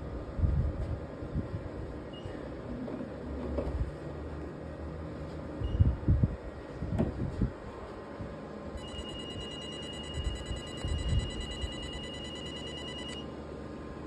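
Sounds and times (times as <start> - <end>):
machine cooling whirr: 7.6 - 14.0
steady high beep: 8.8 - 13.3.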